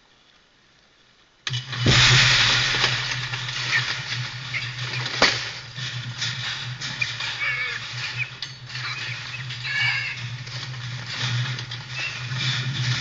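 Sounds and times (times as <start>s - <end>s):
sudden loud rush of noise: 1.7s - 4.1s.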